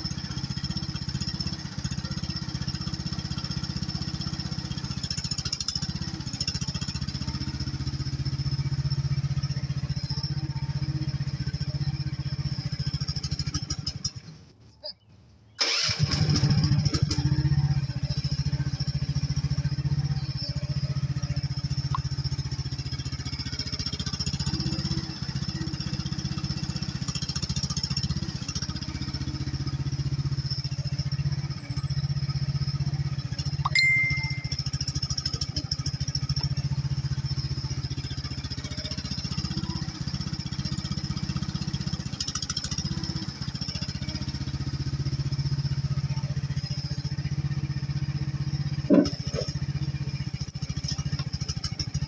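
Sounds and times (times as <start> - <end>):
excavator engine running: 15.6 - 52.0
short metallic ding: 33.7 - 34.6.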